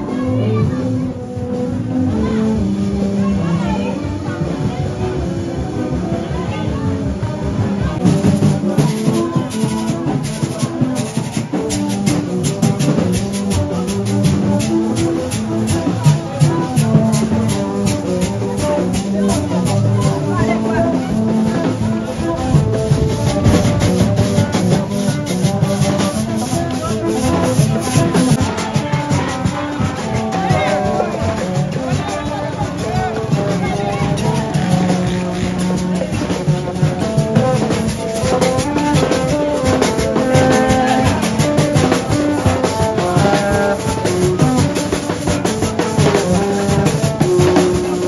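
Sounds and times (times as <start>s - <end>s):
steady percussion beat: 0.0s - 48.0s
music with fast dense drumming: 5.6s - 48.0s.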